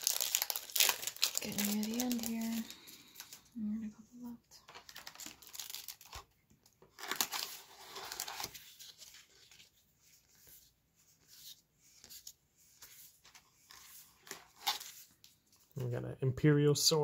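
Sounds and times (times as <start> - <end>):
paper cards sliding and scraping: 7.5 - 15.2.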